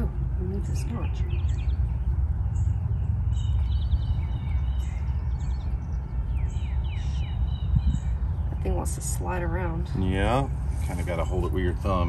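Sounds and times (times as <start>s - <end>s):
birds chirping: 0.0s - 12.0s
outdoor background rumble: 0.0s - 12.0s.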